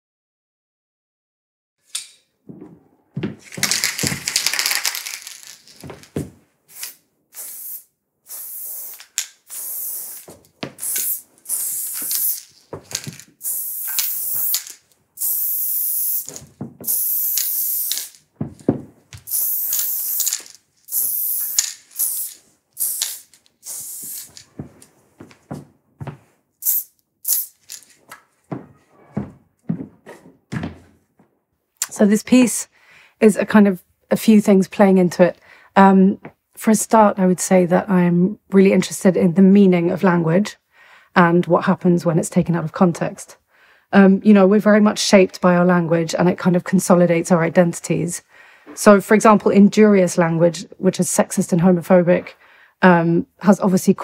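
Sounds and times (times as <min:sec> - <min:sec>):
spray-paint can hissing: 0:06.7 - 0:18.2, 0:19.3 - 0:24.5, 0:26.6 - 0:27.8.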